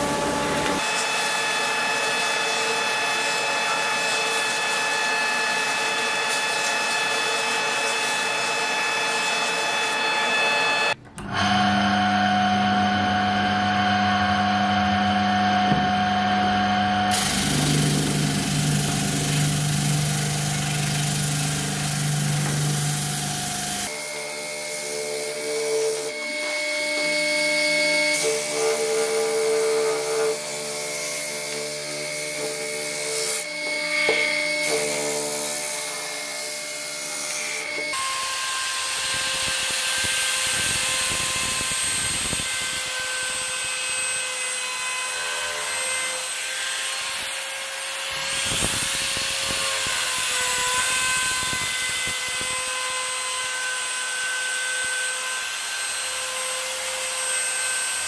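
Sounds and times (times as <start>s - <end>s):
electric motor running: 0.0s - 46.2s
sanding disc sanding wood: 0.8s - 10.4s, 17.1s - 38.0s.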